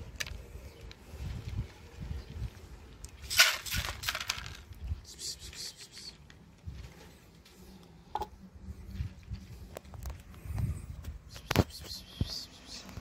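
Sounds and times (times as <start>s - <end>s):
pellets clicking: 3.2s - 4.7s
kibble poured into plastic tray: 3.3s - 4.6s.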